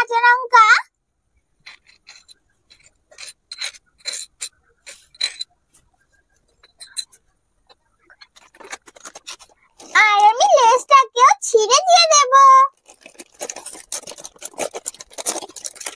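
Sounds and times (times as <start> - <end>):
metal spoon scraping clay dish: 1.6 - 10.0.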